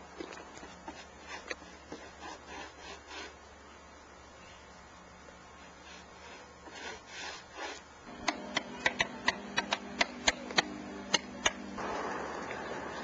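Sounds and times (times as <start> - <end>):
hand tool scraping wood: 0.6 - 3.4, 5.8 - 8.7.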